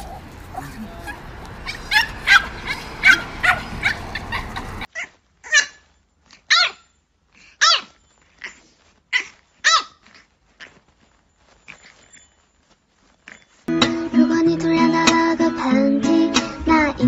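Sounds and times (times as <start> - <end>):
puppy high-pitched barks: 0.0 - 5.8, 6.5 - 6.9, 7.6 - 10.0
street noise: 0.0 - 6.5
small dogs yipping: 0.0 - 13.7.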